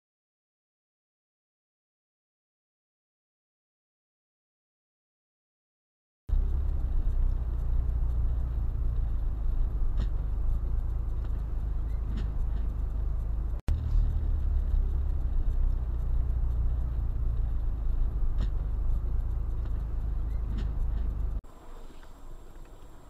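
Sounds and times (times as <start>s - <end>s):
engine and tyre rumble: 6.3s - 23.0s
faint ticks: 14.6s - 23.0s.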